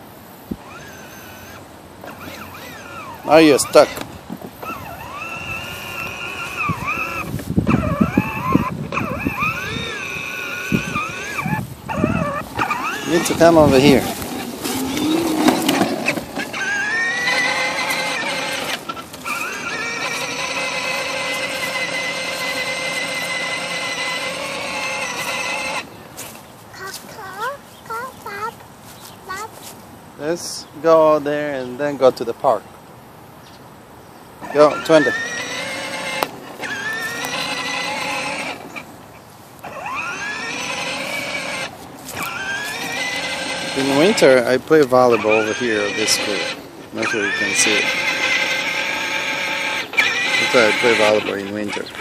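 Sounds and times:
toy truck electric motor whining: 0.6s - 4.0s, 4.6s - 25.9s, 34.5s - 38.8s, 39.6s - 44.4s, 45.0s - 46.6s, 47.2s - 52.0s.

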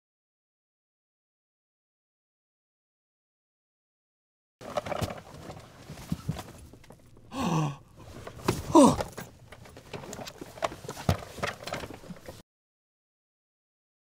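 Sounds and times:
cries falling in pitch: 7.3s - 7.8s, 8.7s - 9.1s.

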